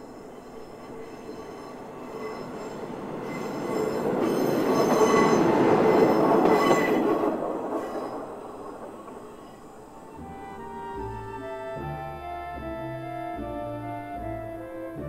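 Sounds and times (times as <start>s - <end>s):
railcar rumbling on rails: 0.0s - 15.0s.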